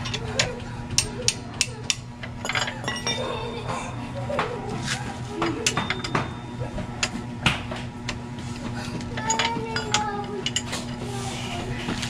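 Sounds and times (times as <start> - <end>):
steel wrench clinking on metal: 0.0 - 3.3.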